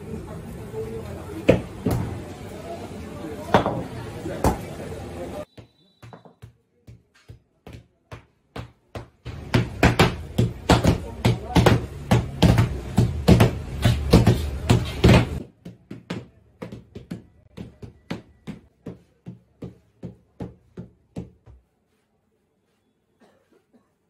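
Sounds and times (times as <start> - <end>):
mallets pounding on stone: 8.1 - 21.3.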